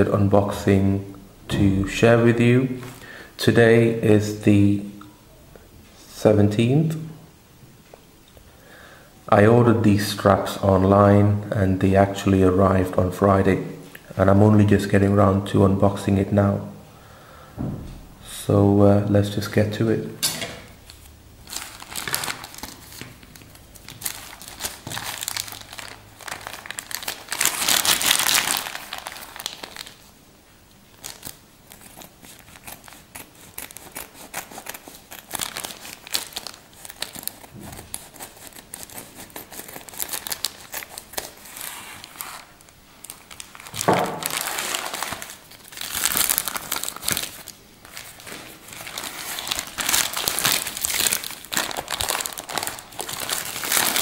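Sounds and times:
plastic bag crinkling: 0:20.7 - 0:30.1, 0:30.9 - 0:54.0.

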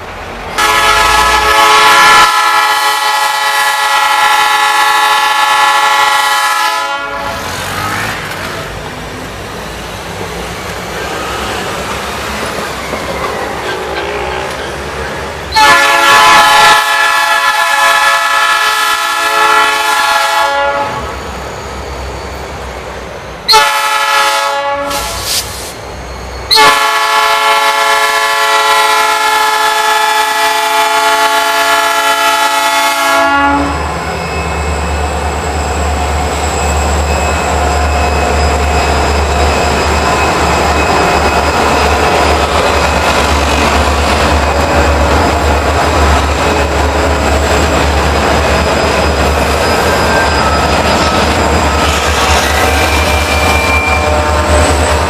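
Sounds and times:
deep locomotive engine rumble: 0:00.0 - 0:55.0
locomotive air horn blasts: 0:00.6 - 0:07.5, 0:15.5 - 0:21.1, 0:23.5 - 0:25.3, 0:26.5 - 0:33.9, 0:53.9 - 0:54.6.

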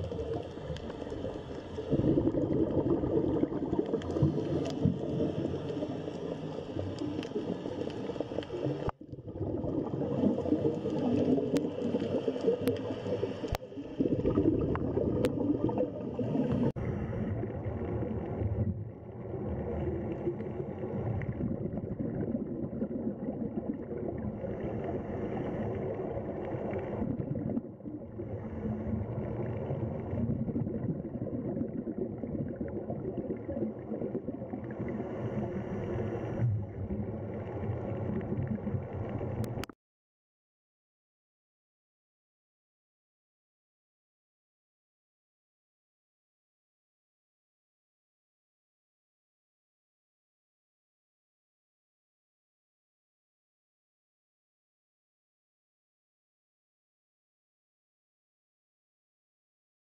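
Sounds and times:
underwater rushing and bubbling: 0:00.0 - 0:39.7.

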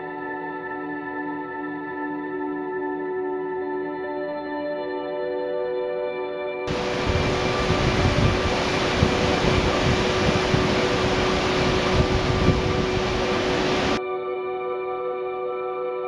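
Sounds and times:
soft ambient music: 0:00.0 - 0:16.0
wind buffeting microphone: 0:06.7 - 0:14.0.

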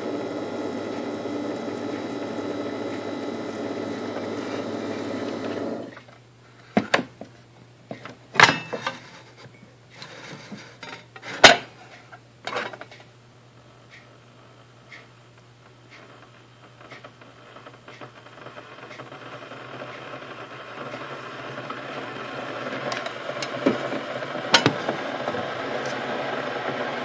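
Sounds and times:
coffee maker brewing: 0:00.0 - 0:07.0, 0:15.0 - 0:27.0.

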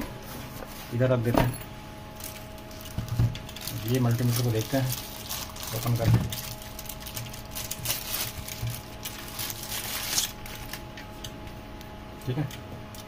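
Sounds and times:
plastic bag crinkling: 0:02.2 - 0:11.0.

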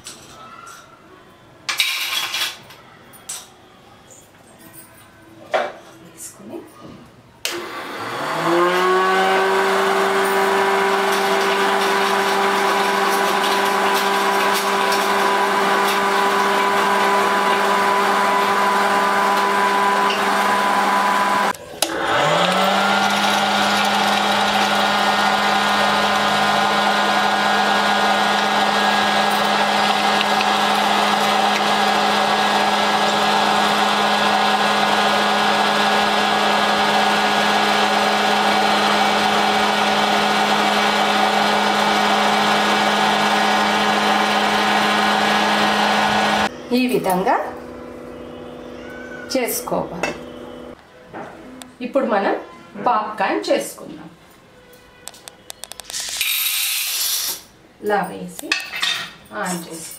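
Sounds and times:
fan motor humming: 0:07.5 - 0:50.8.

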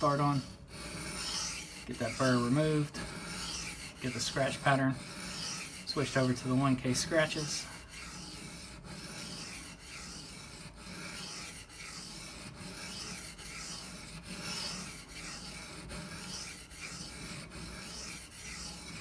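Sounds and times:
knife scraping on whetstone: 0:00.0 - 0:19.0.

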